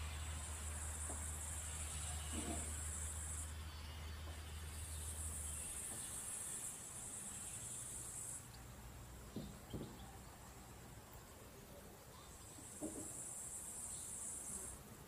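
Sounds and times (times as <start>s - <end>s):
faint outdoor ambience: 0.0s - 15.0s.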